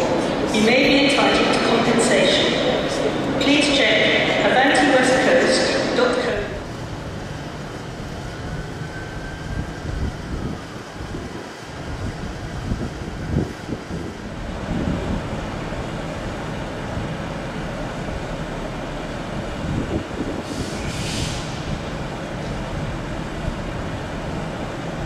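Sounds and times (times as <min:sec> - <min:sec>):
diesel train engines rumbling: 0:00.0 - 0:25.0
short hiss: 0:20.5 - 0:21.6.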